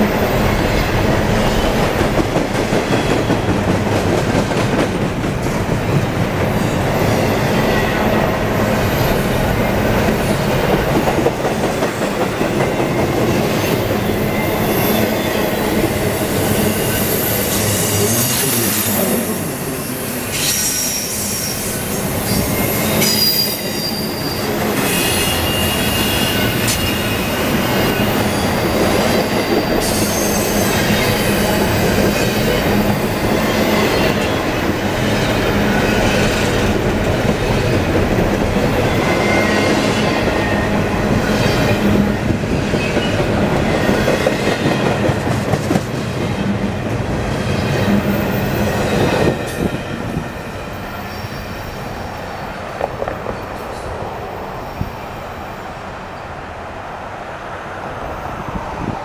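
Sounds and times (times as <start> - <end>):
freight train wheels rumbling on rail: 0.0 - 59.0
high wheel squeals: 13.2 - 34.4.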